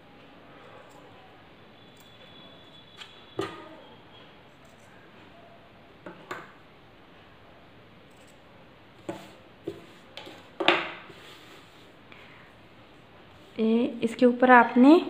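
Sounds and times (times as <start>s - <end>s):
fabric rustling: 9.7s - 12.1s.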